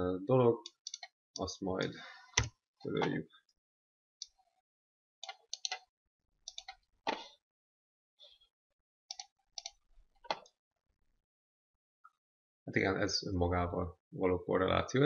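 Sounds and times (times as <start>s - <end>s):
keyboard and mouse clicks: 0.6s - 1.1s, 5.2s - 5.9s, 6.5s - 7.3s, 9.1s - 10.6s.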